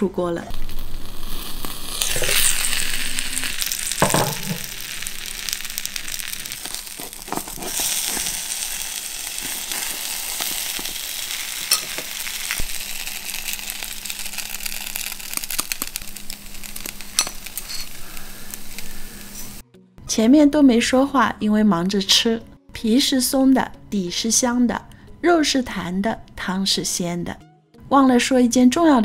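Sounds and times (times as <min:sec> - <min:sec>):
buns sizzling in oil: 0:00.5 - 0:19.6.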